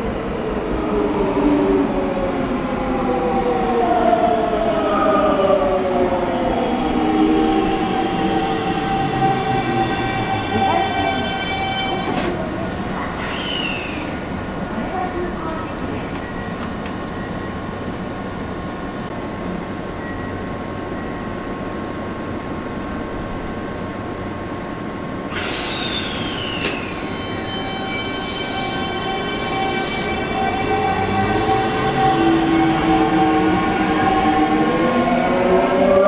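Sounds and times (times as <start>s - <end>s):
train humming: 0.0s - 36.0s
train hiss: 12.6s - 14.2s, 25.3s - 27.4s.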